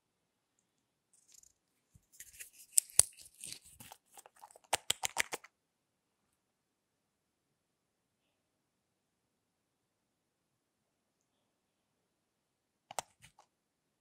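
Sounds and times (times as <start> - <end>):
plastic cap clicks: 2.2 - 5.5.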